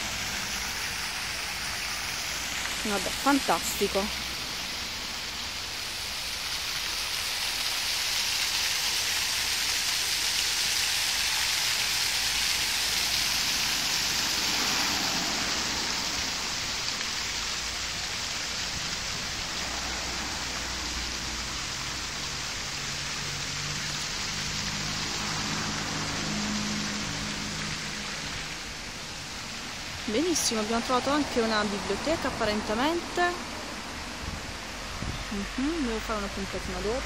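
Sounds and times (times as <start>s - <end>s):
running water rushing: 0.0s - 37.0s.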